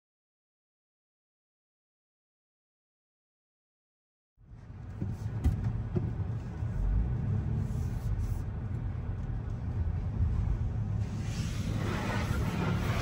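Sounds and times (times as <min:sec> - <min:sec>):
car rumble from inside cabin: 0:04.4 - 0:13.0.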